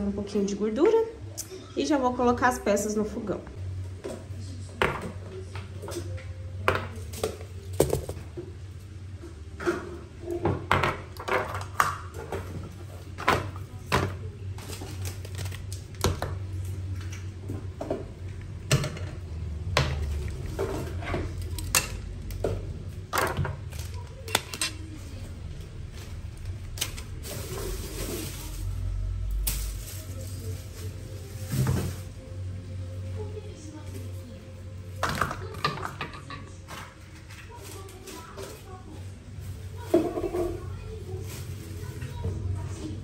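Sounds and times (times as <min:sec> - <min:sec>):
rustling: 0:25.8 - 0:32.2.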